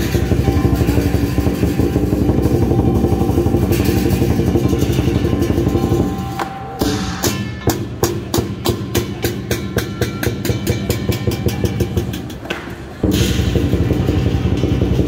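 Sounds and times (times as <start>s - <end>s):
fast drum roll: 0.0s - 7.2s, 13.0s - 15.0s
big drum beating: 0.0s - 15.0s
cymbals clashing: 0.0s - 15.0s.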